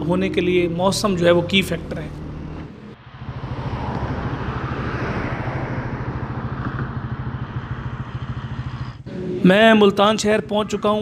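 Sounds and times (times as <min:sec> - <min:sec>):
motorcycle engine running: 0:00.0 - 0:11.0
wind rushing: 0:03.0 - 0:09.0.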